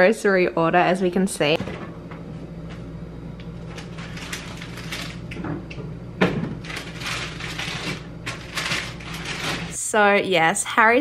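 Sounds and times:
steady low hum: 0.0 - 10.5
packaging rustling: 3.6 - 5.4, 6.6 - 9.8
fridge door opening: 3.6 - 9.8.

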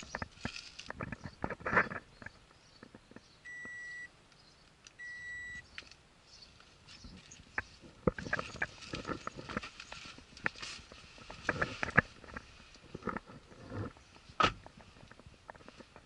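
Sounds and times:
high electronic beeps: 3.5 - 4.1, 5.0 - 5.6.

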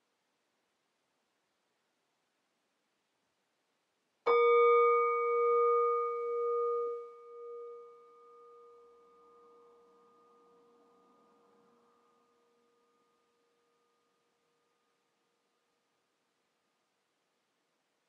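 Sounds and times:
singing bowl ringing: 4.3 - 15.0.

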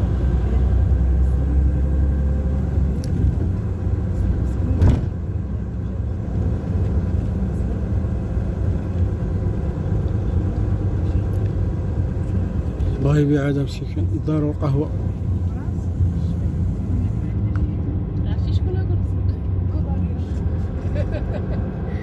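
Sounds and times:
vehicle engine and road rumble: 0.0 - 22.0
sharp thump: 4.8 - 5.2.

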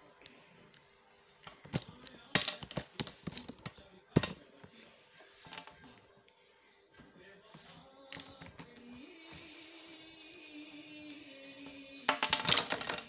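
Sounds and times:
plastic puzzle pieces clicking: 12.1 - 13.0.

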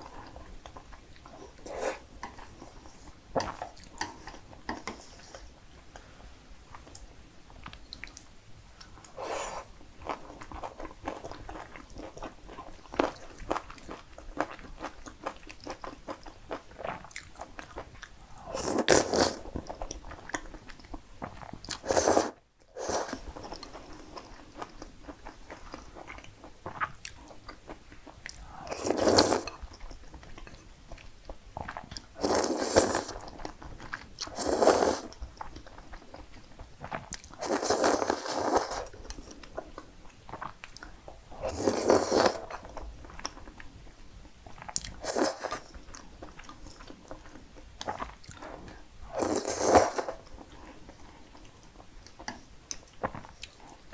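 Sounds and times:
slurping noodles: 18.5 - 19.4, 21.8 - 23.3, 28.6 - 29.6, 32.2 - 33.2, 34.3 - 35.1, 37.4 - 38.9, 41.4 - 42.6, 45.0 - 45.7, 49.1 - 50.2.

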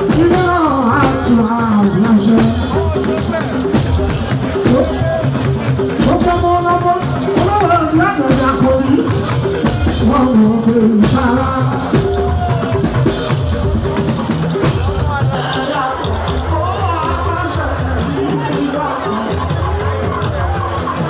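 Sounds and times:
drums and percussion: 0.0 - 21.0
person singing: 4.6 - 21.0.

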